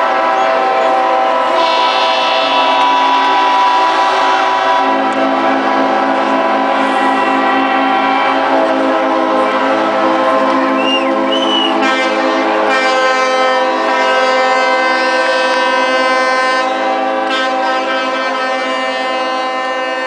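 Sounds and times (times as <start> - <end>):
boat horns sounding together: 0.0 - 20.0
short whistles: 10.7 - 11.8.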